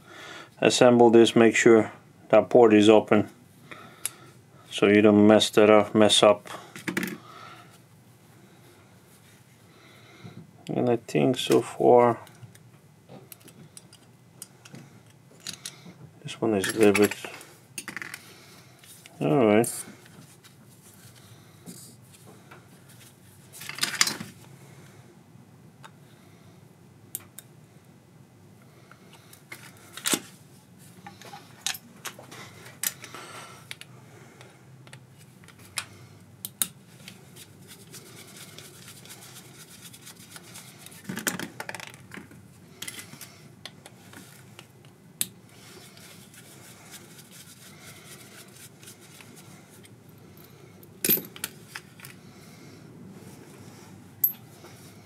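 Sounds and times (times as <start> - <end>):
metal parts clinking: 51.0 - 51.8.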